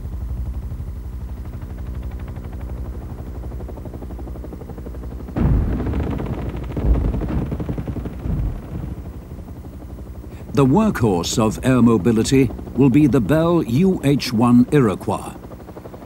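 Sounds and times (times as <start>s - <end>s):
helicopter rotors beating: 0.0s - 16.0s
gunfire and blasts: 5.4s - 9.4s
heavy thump: 6.8s - 9.1s.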